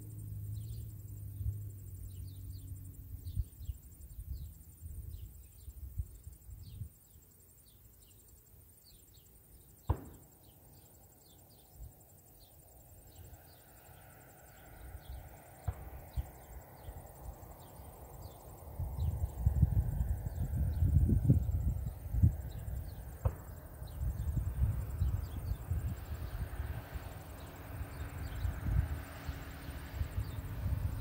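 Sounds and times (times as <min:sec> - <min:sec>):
insects chirping in grass: 0:00.0 - 0:31.0
wind buffeting microphone: 0:15.9 - 0:31.0.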